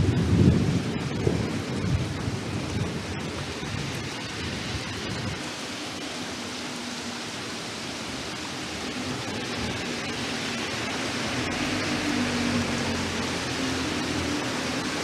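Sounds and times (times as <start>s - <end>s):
low thunder rumble: 0.0s - 5.4s
heavy rain hissing: 0.0s - 15.0s.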